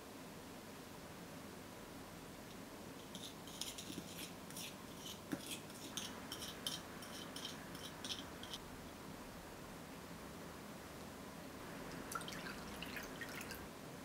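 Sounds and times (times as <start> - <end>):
spoon scraping glass cup: 3.0 - 8.6.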